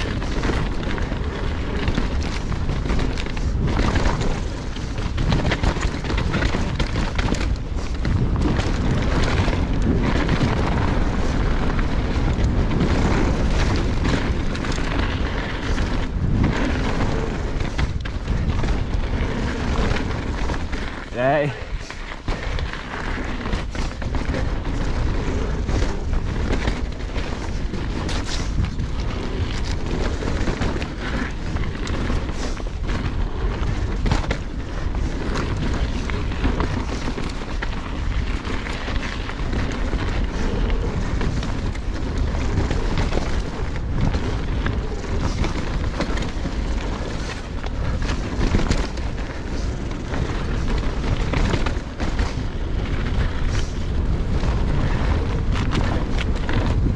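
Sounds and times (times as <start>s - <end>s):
bike rattling over bumps: 0.0s - 56.9s
wind rumble on microphone: 0.0s - 56.9s.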